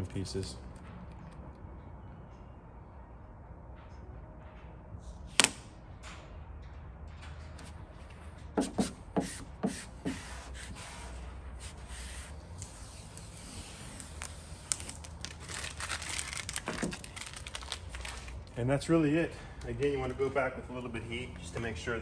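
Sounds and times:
tape peeling with plastic crinkling: 0:10.3 - 0:18.6.

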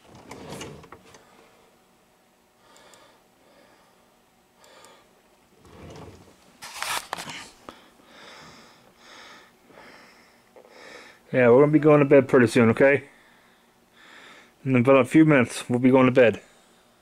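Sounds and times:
camera handling rustle: 0:06.6 - 0:07.6.

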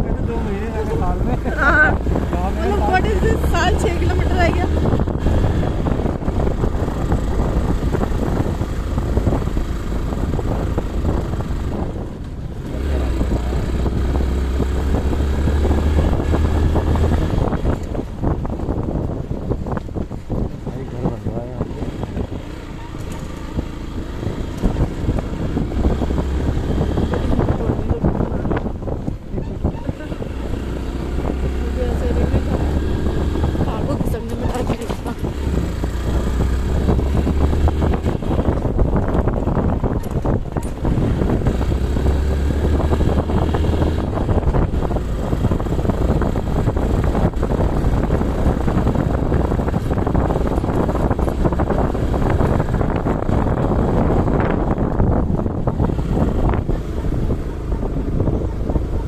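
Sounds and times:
vehicle engine running low: 0:00.0 - 0:59.0
wind buffeting microphone: 0:00.0 - 0:59.0
vehicle knocks and rattles: 0:33.5 - 0:41.6.

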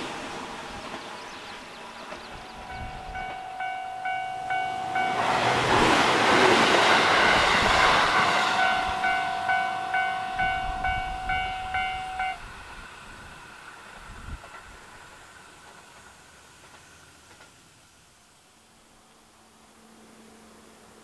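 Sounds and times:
electric train passing: 0:00.0 - 0:21.0
level crossing bell clanging: 0:02.5 - 0:12.4.

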